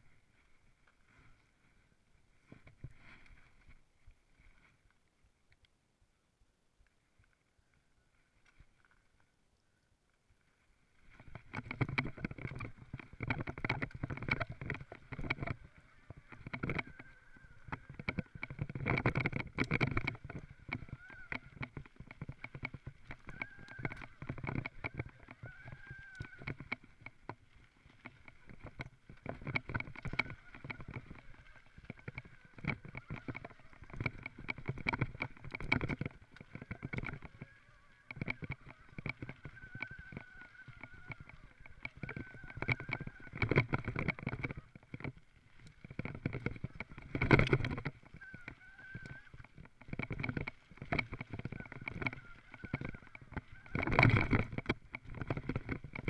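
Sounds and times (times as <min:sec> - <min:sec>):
bike tyres on rough trail: 0:00.0 - 0:05.3, 0:07.0 - 0:56.0
bike rattling and clattering: 0:11.2 - 0:56.0.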